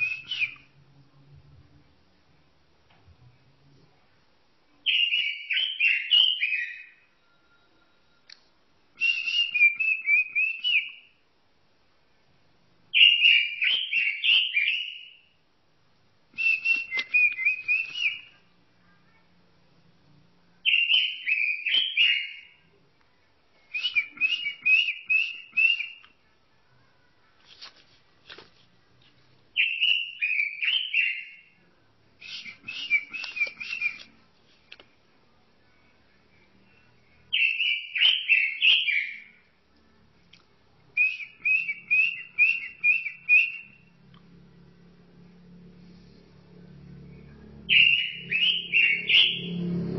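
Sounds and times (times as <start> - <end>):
robin singing: 0.0 - 0.8, 4.8 - 7.8, 9.0 - 11.2, 12.9 - 15.4, 16.4 - 18.5, 20.6 - 22.7, 23.6 - 26.1, 29.6 - 31.6, 32.2 - 34.2, 37.2 - 39.4, 40.9 - 44.0, 47.2 - 49.7.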